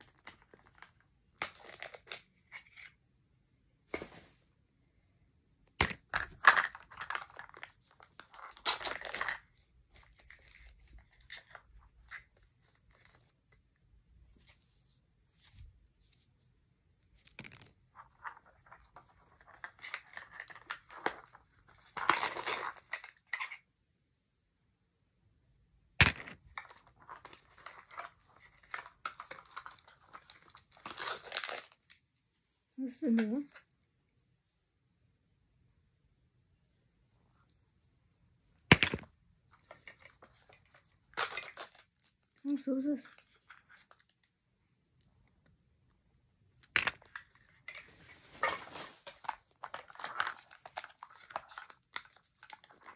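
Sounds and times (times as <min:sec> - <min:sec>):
plastic packaging crinkling and tearing: 0:06.4 - 0:09.4, 0:27.0 - 0:32.0, 0:41.1 - 0:42.4, 0:47.1 - 0:52.9.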